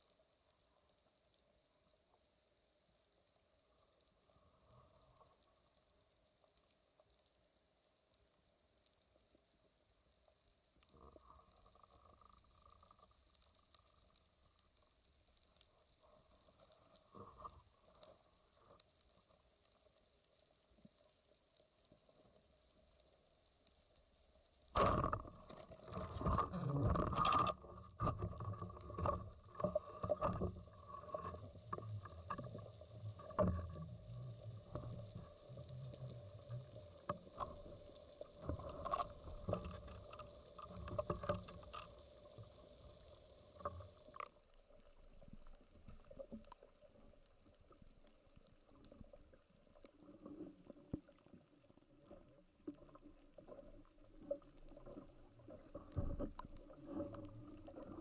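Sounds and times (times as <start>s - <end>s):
underwater clicks and knocks: 24.8s - 44.3s, 54.5s - 58.0s.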